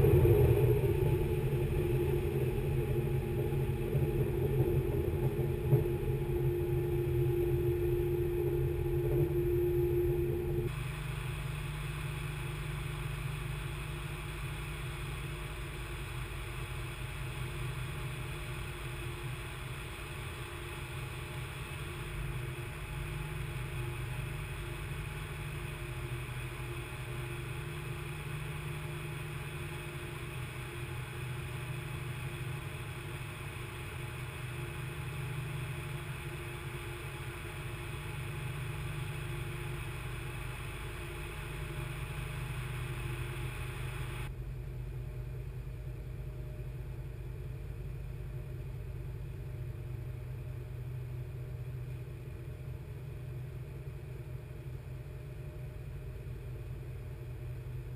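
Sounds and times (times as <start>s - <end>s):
boat engine low hum: 0.0s - 57.9s.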